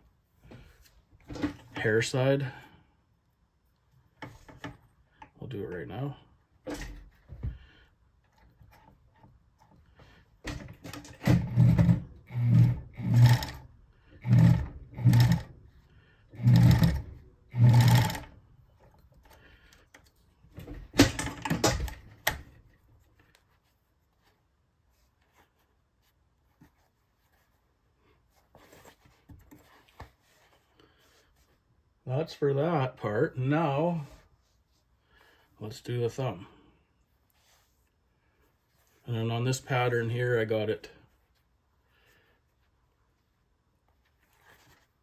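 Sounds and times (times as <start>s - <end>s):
sewing machine running in spurts: 11.4s - 13.6s, 14.2s - 15.5s, 16.4s - 18.3s.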